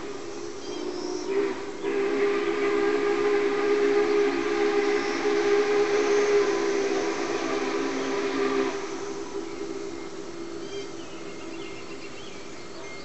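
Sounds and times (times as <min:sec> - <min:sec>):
steam locomotive chime whistle: 0:00.0 - 0:10.2.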